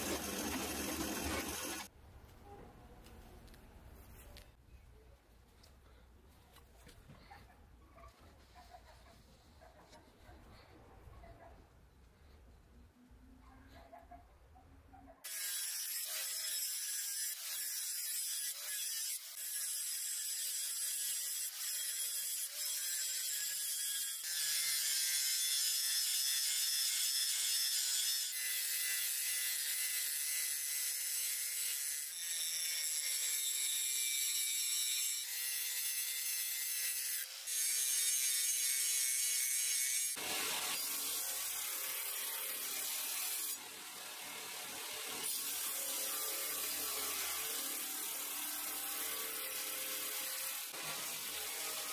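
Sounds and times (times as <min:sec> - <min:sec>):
angle grinder grinding steel: 0:00.0 - 0:01.9, 0:15.3 - 0:51.9
belt grinder sanding blade: 0:00.0 - 0:01.9, 0:15.3 - 0:51.9.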